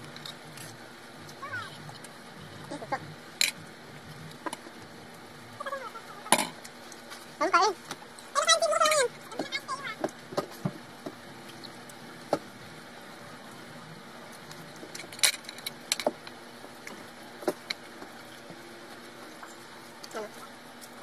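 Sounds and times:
faint background hum: 0.0 - 21.0.

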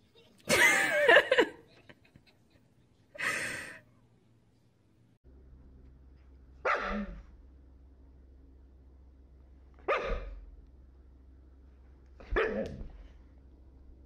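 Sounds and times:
breathy gasp or laugh: 3.2 - 3.8.

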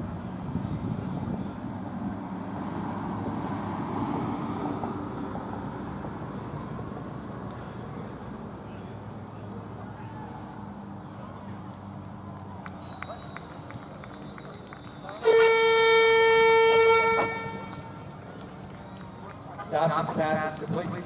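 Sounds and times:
crowd murmur: 6.8 - 21.0.

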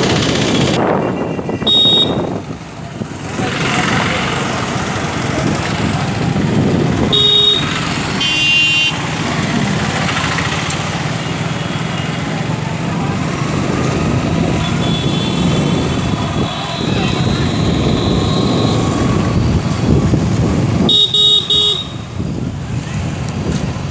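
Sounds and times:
engine and road rumble: 0.0 - 23.9
car horn honks: 0.9 - 2.4, 7.1 - 9.0, 14.6 - 18.9, 20.9 - 22.0.

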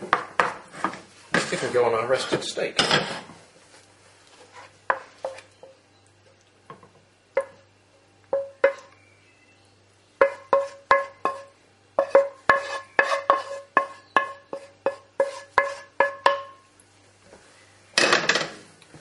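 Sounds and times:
utensil knocking on frying pan: 8.4 - 8.9, 10.2 - 16.7.

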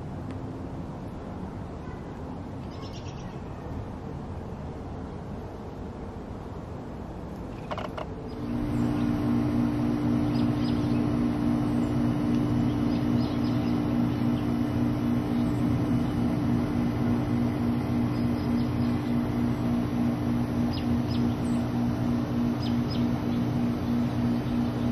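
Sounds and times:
low mechanical hum: 0.0 - 24.9
bird chirps: 2.6 - 3.4, 7.5 - 24.9.

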